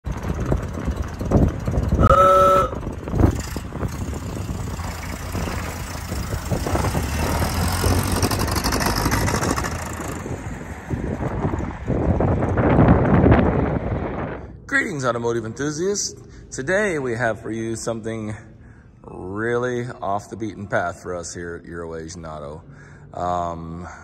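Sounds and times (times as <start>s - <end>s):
vehicle engine rumbling: 0.0s - 24.0s
car horn toot: 2.0s - 3.0s.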